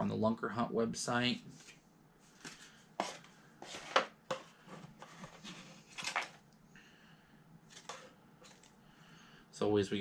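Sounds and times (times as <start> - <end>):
cards and paper rustling in box: 5.0 - 6.4, 7.7 - 8.8.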